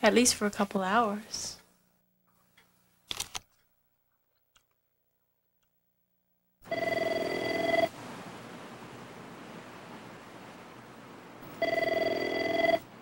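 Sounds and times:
electronic telephone ring: 6.6 - 7.9, 11.5 - 12.9
steady hiss: 6.7 - 13.0.

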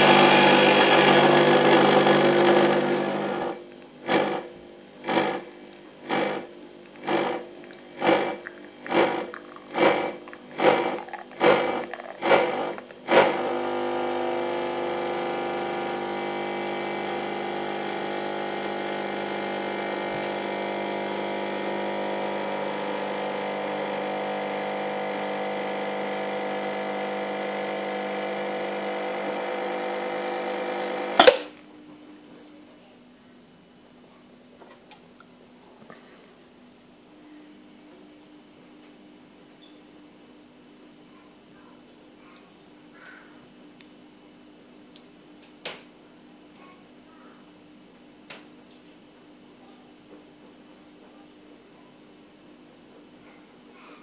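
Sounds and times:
espresso machine pump buzzing: 0.0 - 31.5.

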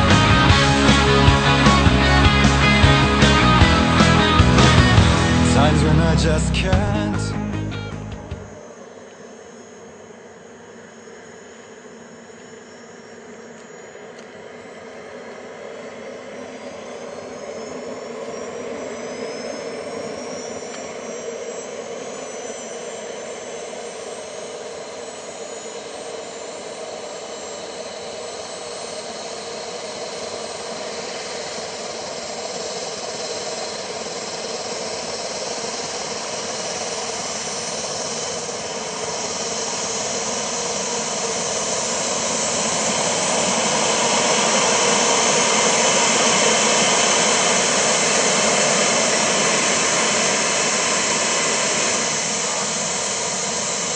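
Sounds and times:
turbine whine rising in pitch: 0.0 - 53.9
rushing turbine noise: 14.3 - 53.9.

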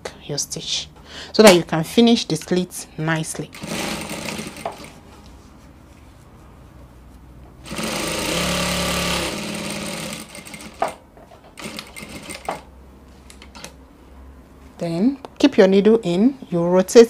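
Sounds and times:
sewing machine stitching: 3.5 - 4.9, 7.6 - 11.0, 11.6 - 12.6.

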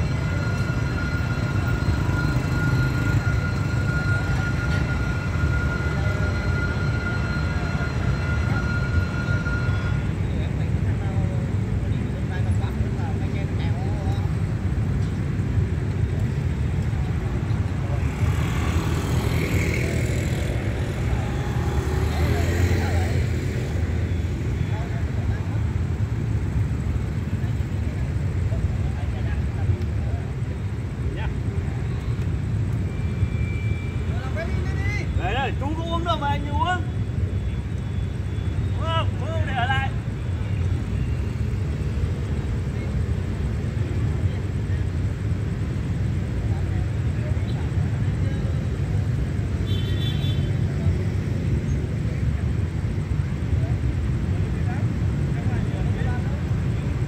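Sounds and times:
motorbike traffic rumble: 0.0 - 57.0.

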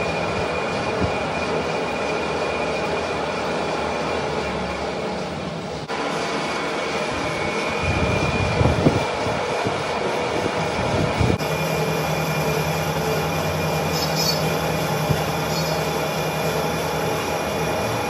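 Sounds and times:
lathe machine drone: 0.0 - 18.0
cutting tool scraping metal: 15.4 - 15.9.

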